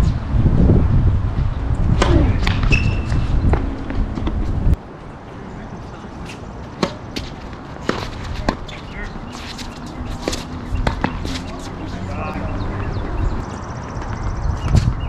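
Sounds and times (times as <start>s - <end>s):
low rumble: 0.0s - 4.8s
tennis balls struck by rackets: 1.9s - 4.5s, 6.2s - 15.0s.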